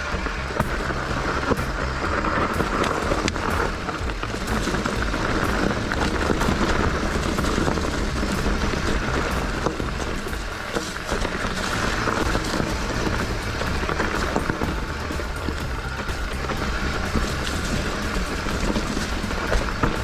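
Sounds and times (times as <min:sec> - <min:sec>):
bike clicks and rattles: 0:00.0 - 0:20.0
tyre rumble: 0:00.0 - 0:20.0.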